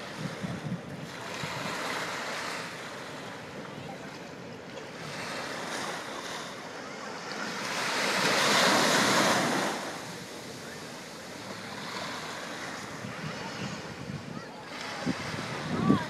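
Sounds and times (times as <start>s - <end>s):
wind on microphone: 0.0s - 2.2s, 12.6s - 16.0s
small waves washing ashore: 0.0s - 16.0s.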